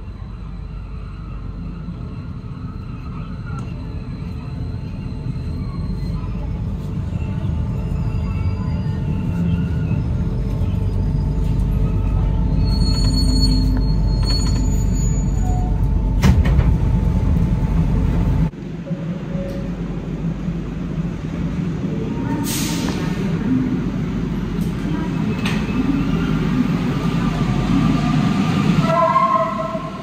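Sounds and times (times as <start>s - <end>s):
metro train rumble: 0.0s - 30.0s
high squeal: 0.9s - 15.8s.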